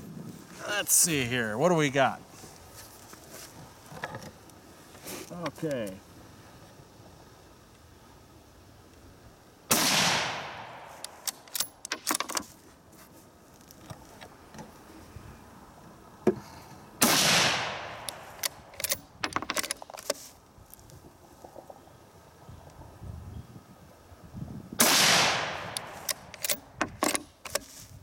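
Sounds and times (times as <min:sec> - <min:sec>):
rifle shots: 0:09.7 - 0:11.5, 0:17.0 - 0:18.3, 0:24.8 - 0:26.6
rifle bolt metallic clicks: 0:10.8 - 0:12.5, 0:17.9 - 0:20.2, 0:25.2 - 0:27.7.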